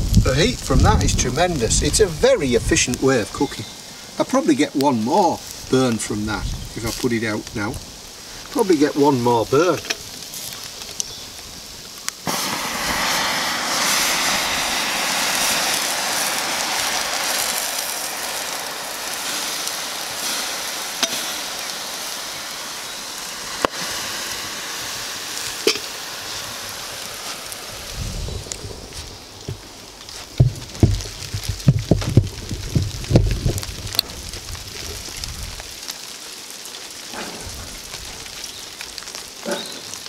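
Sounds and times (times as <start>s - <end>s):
water hissing on embers: 0.0s - 40.0s
sharp crack: 12.0s - 28.7s
sharp pops: 12.0s - 36.0s.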